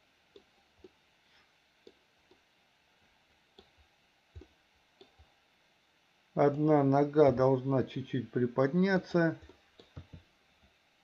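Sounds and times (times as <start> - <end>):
computer mouse clicks: 9.4 - 10.3.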